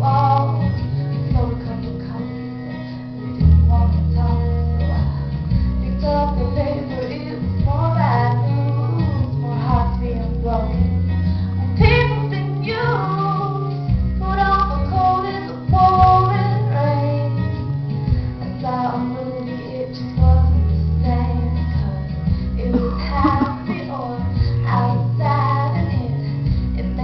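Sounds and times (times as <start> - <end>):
girl singing into microphone: 0.0 - 27.0
instrumental accompaniment with bass: 0.0 - 27.0.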